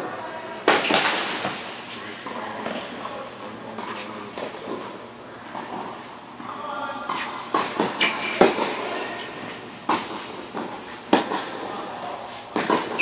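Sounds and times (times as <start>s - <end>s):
tennis ball struck by rackets: 0.6s - 2.0s, 7.1s - 11.6s
tennis ball bouncing on court: 0.6s - 3.2s, 7.1s - 11.6s, 12.5s - 13.0s.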